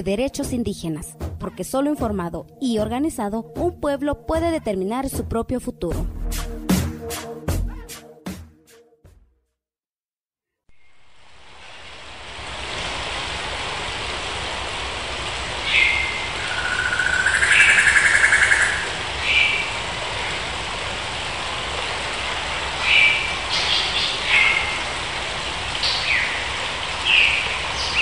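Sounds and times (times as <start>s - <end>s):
steady rain-like hiss: 10.7s - 28.0s
loud bird trilling call: 15.7s - 19.6s
birds chirping: 15.7s - 19.7s.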